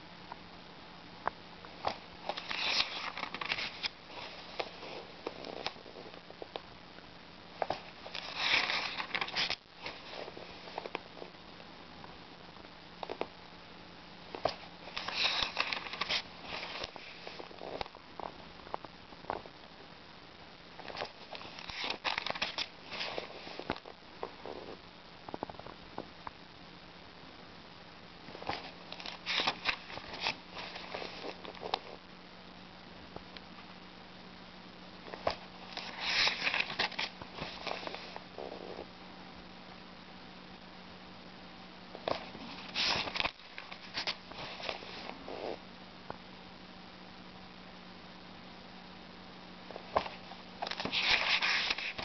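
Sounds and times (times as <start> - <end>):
faint steady hum: 0.0 - 52.0
book pages turning: 1.8 - 6.6, 7.6 - 11.0, 14.3 - 17.9, 20.8 - 24.3, 28.4 - 31.9, 35.1 - 38.8, 42.0 - 45.6, 49.8 - 52.0.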